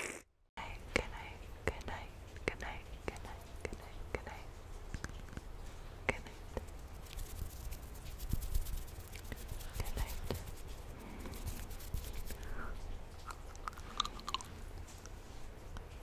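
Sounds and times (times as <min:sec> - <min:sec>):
wet mouth clicks and smacks: 0:13.2 - 0:15.2.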